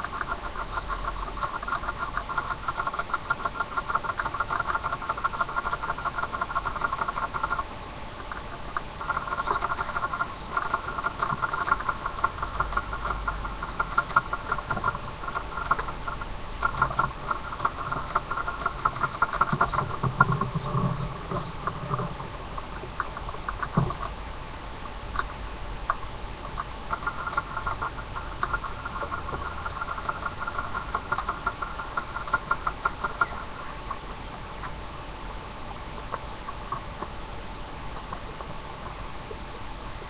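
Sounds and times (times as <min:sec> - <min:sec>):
rat scrabbling and scratching: 0:00.0 - 0:24.2, 0:25.9 - 0:35.4, 0:36.0 - 0:37.2, 0:39.8 - 0:40.0.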